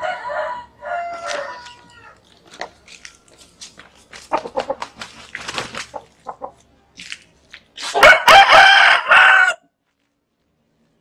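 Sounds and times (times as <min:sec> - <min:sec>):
rooster crowing: 0:00.0 - 0:02.2, 0:08.0 - 0:09.7
rooster clucking: 0:04.2 - 0:06.7.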